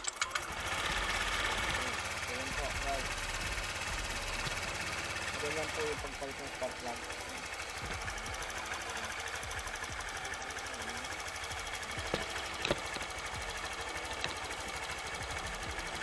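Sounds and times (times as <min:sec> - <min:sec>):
scooter engine idling: 0:00.0 - 0:16.0
sharp clicks: 0:11.6 - 0:15.9.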